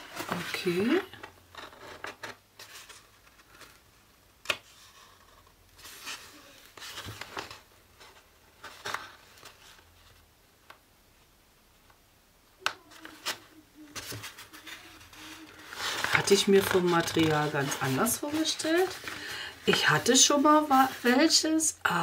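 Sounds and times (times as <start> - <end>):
cloth rustling: 13.0 - 21.3.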